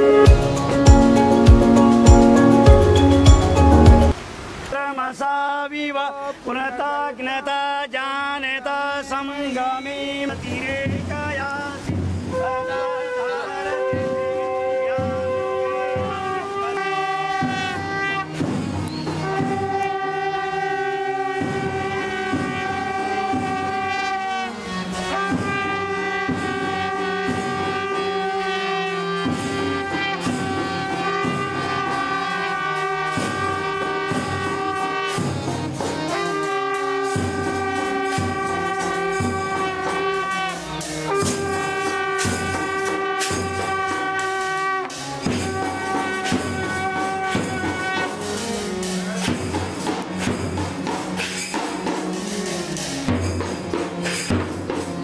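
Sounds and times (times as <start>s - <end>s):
bugles playing long notes: 0.0s - 4.2s, 12.3s - 50.9s
drum beats: 0.0s - 4.2s, 10.3s - 12.9s, 13.7s - 55.0s.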